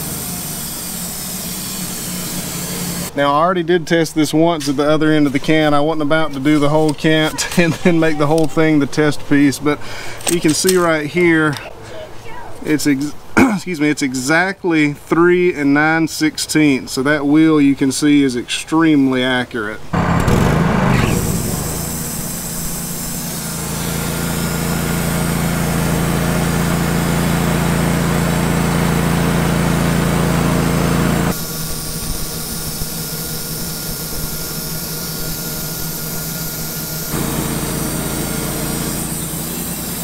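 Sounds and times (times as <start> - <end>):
sawmill engine drone: 0.0 - 3.2, 19.9 - 40.0
band blade sawing wood: 20.0 - 27.2, 31.0 - 40.0.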